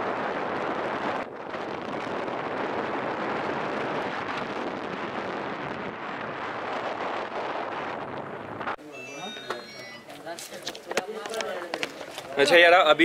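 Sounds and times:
wind rushing over microphone: 0:00.0 - 0:08.8.

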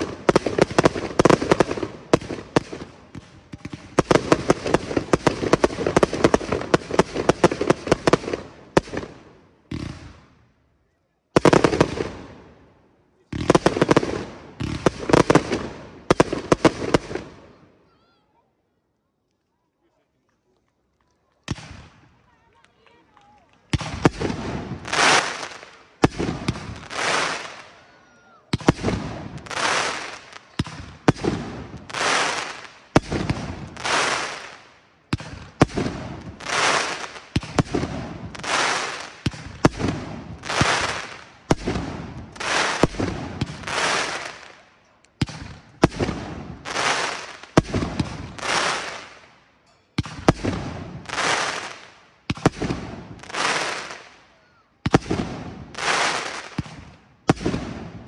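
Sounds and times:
crackle of firework stars: 0:18.9 - 0:58.0.

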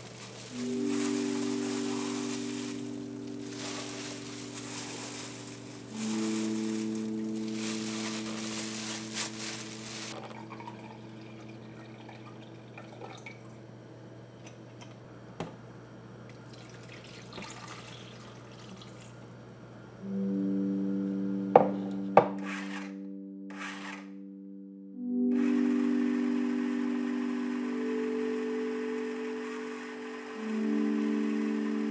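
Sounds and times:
soft background music: 0:00.0 - 0:12.8, 0:19.8 - 0:31.9.

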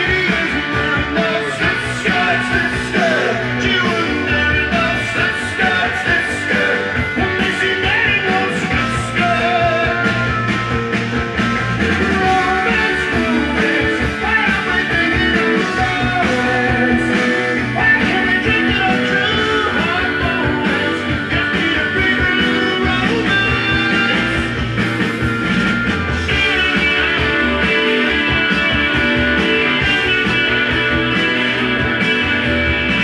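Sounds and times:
person singing: 0:00.0 - 0:10.3, 0:11.8 - 0:24.6
guitar music: 0:00.0 - 0:33.0.

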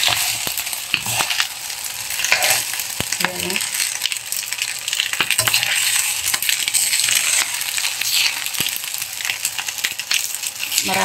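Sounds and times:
metal spatula scraping a pan: 0:00.0 - 0:01.5, 0:02.2 - 0:02.8, 0:05.2 - 0:08.5
rice sizzling in a wok: 0:00.0 - 0:11.0.

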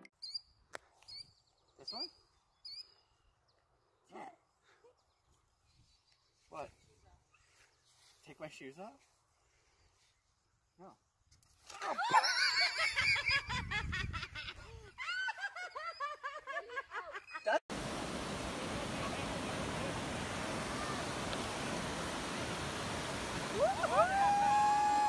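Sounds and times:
high-pitched laughter: 0:11.8 - 0:17.6
surf rushing: 0:17.7 - 0:25.0.

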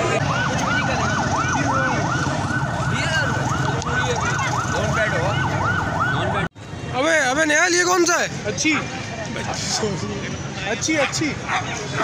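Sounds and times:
electronic siren yelping: 0:00.0 - 0:06.5
street noise: 0:00.0 - 0:12.0.

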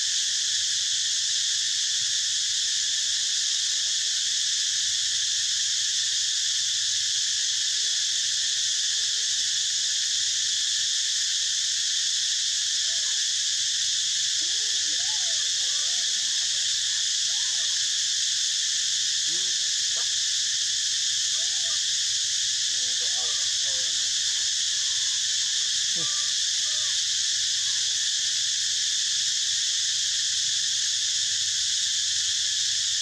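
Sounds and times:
insect chorus drone: 0:00.0 - 0:33.0
faint squeaky calls: 0:14.4 - 0:17.9, 0:21.3 - 0:21.9, 0:22.7 - 0:28.0.

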